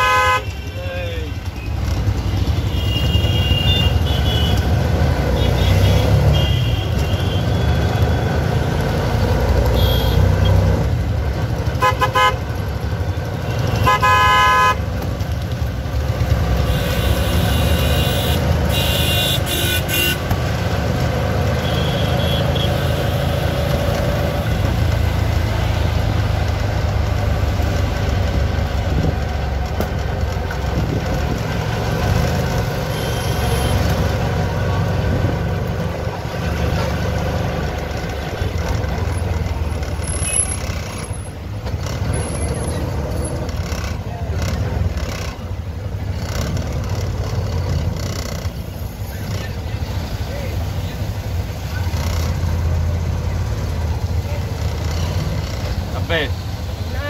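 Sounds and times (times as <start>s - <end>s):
car horn toots: 0.0s - 0.6s, 11.8s - 12.4s, 13.7s - 14.8s
auto-rickshaw engine running: 0.0s - 57.0s
road and traffic noise: 0.0s - 57.0s.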